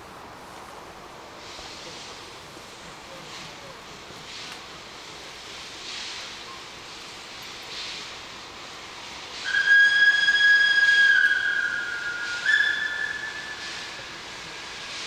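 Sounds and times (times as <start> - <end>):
steam locomotive whistle: 9.4 - 15.0.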